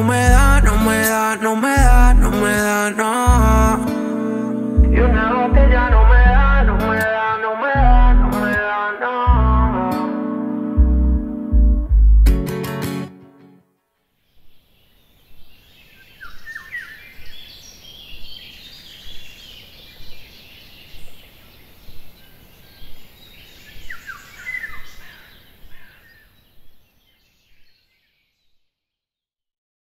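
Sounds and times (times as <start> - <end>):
birds chirping: 0.0 - 7.4, 14.2 - 28.6
faint outdoor noise: 0.0 - 29.0.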